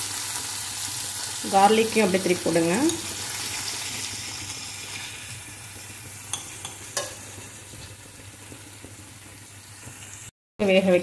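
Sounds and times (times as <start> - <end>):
vegetables sizzling in hot oil: 0.0 - 10.3
spoon clinking against pan: 6.3 - 7.2.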